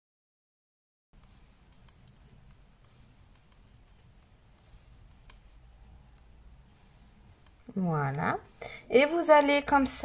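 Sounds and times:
knitting needles clicking: 0:01.2 - 0:06.4, 0:07.4 - 0:08.0
low room hum: 0:01.2 - 0:10.0.

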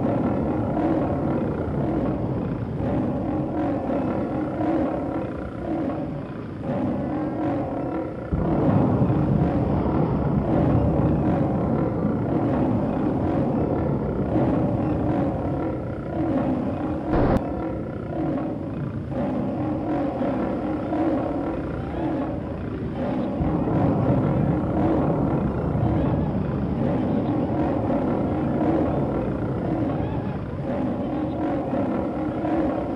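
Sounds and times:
low rumble: 0:17.0 - 0:17.9.

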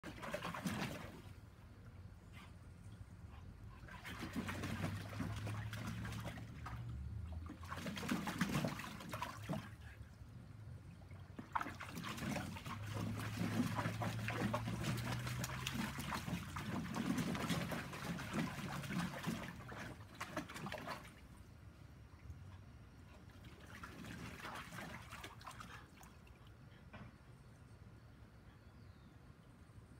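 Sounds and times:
water splashing in pool: 0:00.0 - 0:01.6, 0:03.8 - 0:10.0, 0:10.8 - 0:22.4, 0:23.2 - 0:26.6.

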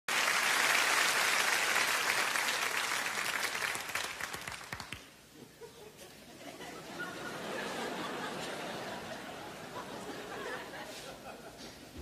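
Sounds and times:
audience applauding: 0:00.1 - 0:05.1.

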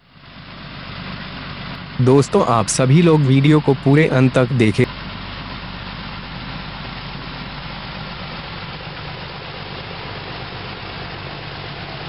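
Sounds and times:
diesel locomotive engine idling: 0:00.0 - 0:12.0.

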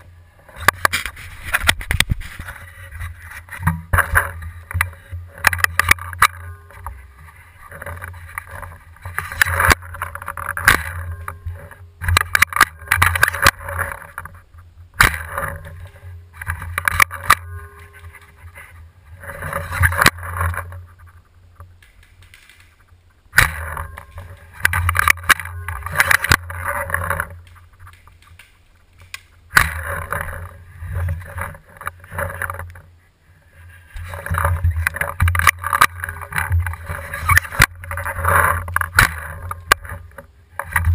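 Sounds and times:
rustling from handling gun: 0:00.4 - 0:32.9.

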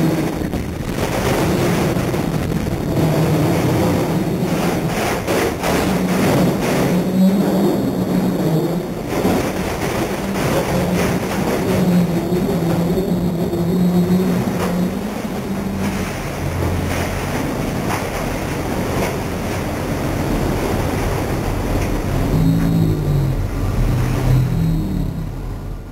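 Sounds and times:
tires sliding and wind rushing: 0:00.0 - 0:25.9
scattered knocks: 0:00.3 - 0:07.2.

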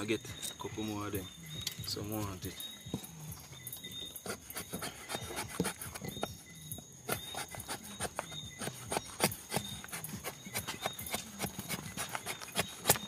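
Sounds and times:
blade scraping wood: 0:04.1 - 0:06.4, 0:07.0 - 0:13.0.

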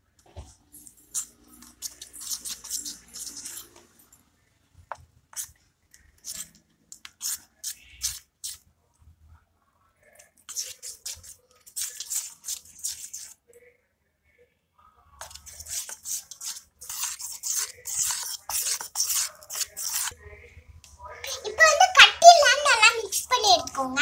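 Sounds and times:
spoon stirring thick batter: 0:00.0 - 0:09.2, 0:10.0 - 0:13.5, 0:15.0 - 0:24.0
spoon scraping steel bowl: 0:00.8 - 0:04.2, 0:05.3 - 0:08.6, 0:10.4 - 0:13.4, 0:15.2 - 0:20.2, 0:21.3 - 0:23.8.

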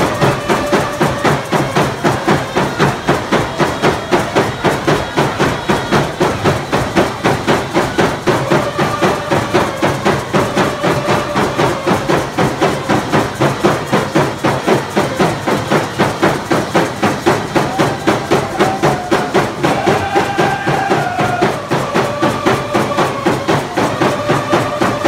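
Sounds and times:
steady pounding drum beat: 0:00.0 - 0:25.0
voices singing held notes: 0:00.0 - 0:25.0.

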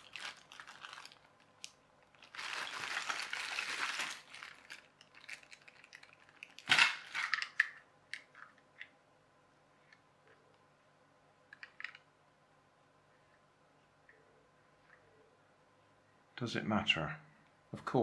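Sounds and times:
plastic bag crinkling: 0:00.0 - 0:07.7.

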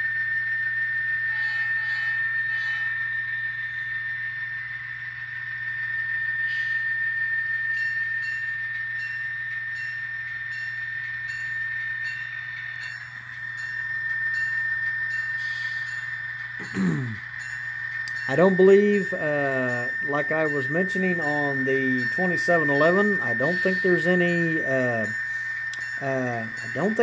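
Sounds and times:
diesel locomotive sound from speaker: 0:01.2 - 0:03.9, 0:06.4 - 0:27.0
faint regular ticks: 0:07.8 - 0:19.2, 0:22.0 - 0:27.0.

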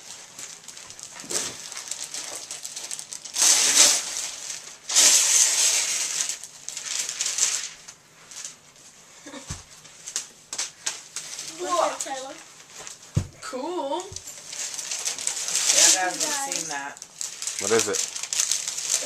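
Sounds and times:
wrapping paper tearing: 0:00.0 - 0:08.8, 0:14.0 - 0:19.0
paper rustling: 0:00.0 - 0:13.3, 0:14.0 - 0:19.0.

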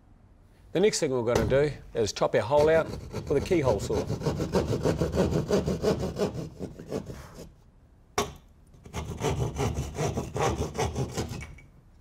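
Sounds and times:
hand saw rasping through plasterboard: 0:02.5 - 0:07.5, 0:08.8 - 0:11.4.

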